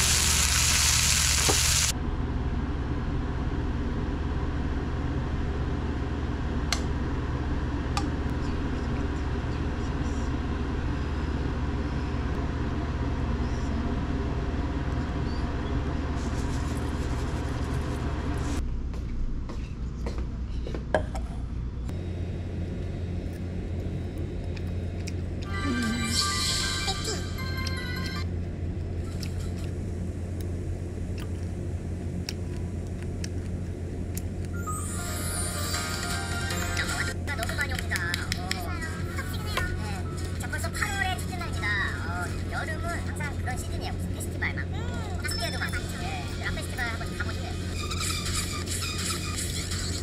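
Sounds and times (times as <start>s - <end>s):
meat sizzling in a frying pan: 0.0s - 1.9s
low hum: 0.0s - 49.9s.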